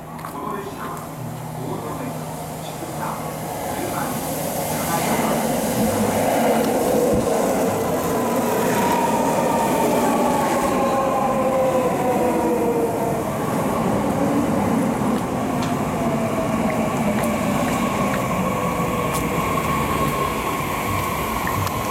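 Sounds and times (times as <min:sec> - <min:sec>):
wheel and rail noise: 0:00.0 - 0:21.9
train motor whine: 0:04.5 - 0:21.9.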